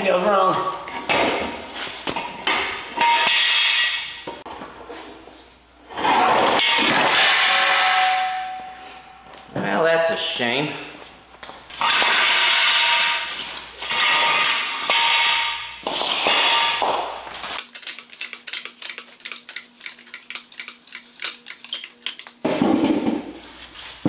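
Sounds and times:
metal scraping on concrete floor: 5.8 - 6.6, 11.7 - 16.9.

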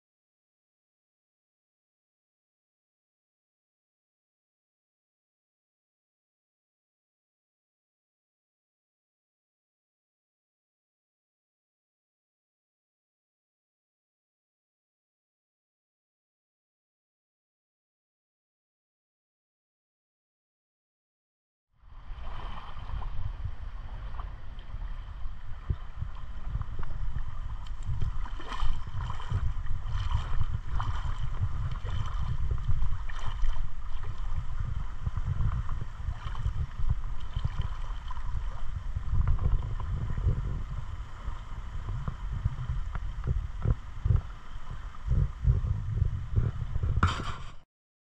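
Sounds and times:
wind buffeting microphone: 21.8 - 47.6
water sloshing: 22.0 - 40.3
knocks or splashes: 27.6 - 34.2.

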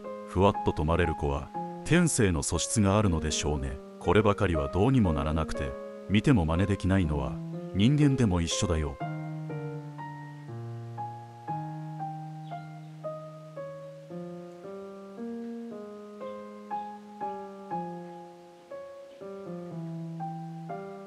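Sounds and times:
slow gentle piano music: 0.0 - 21.0.

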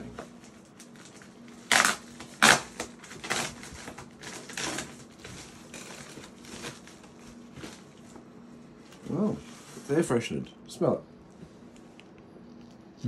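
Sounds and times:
packaging rustling: 0.2 - 8.2.

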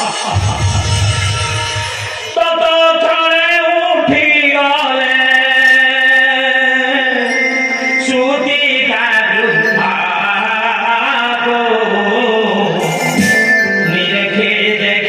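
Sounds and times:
steady musical accompaniment: 0.0 - 3.0
person singing wavering long notes: 5.4 - 15.0.

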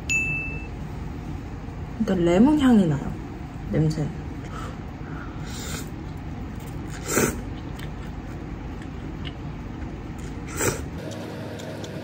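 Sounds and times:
low background hum: 0.0 - 12.0
person slurping noodles: 6.9 - 7.5, 10.5 - 11.0.

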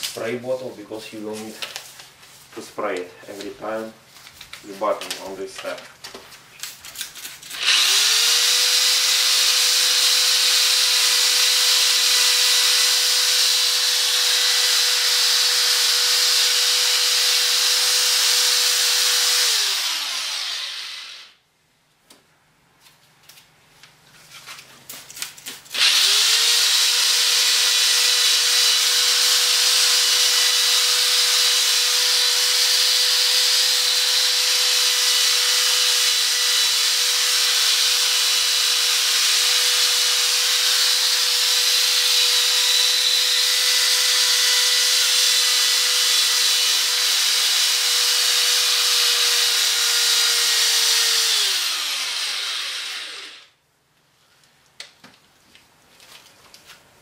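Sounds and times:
electric drill spinning: 7.4 - 21.4, 25.7 - 53.5.

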